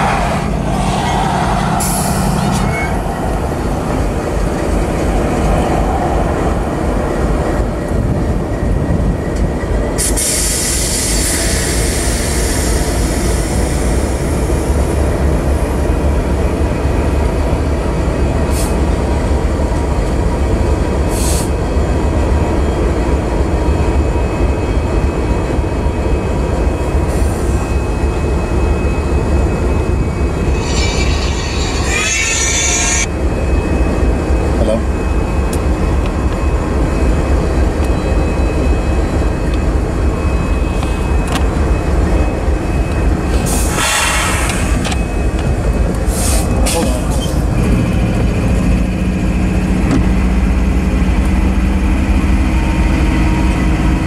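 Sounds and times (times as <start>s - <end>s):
wheels and brakes squealing: 0.7s - 3.1s, 27.1s - 34.0s.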